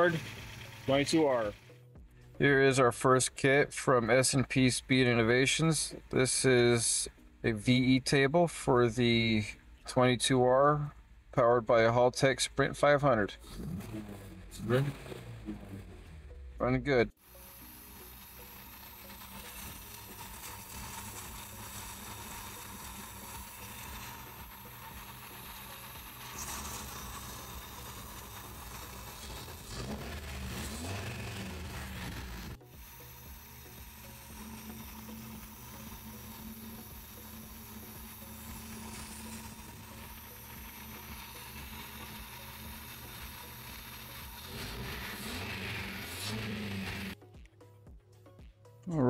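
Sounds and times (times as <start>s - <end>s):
car engine idling and revving: 0.0s - 2.4s, 12.6s - 48.8s.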